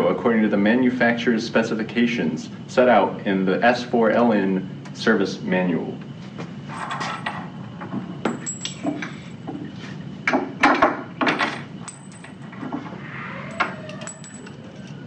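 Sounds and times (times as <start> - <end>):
metal tools clinking on wooden bench: 8.2 - 9.2, 11.3 - 12.6, 13.5 - 15.0.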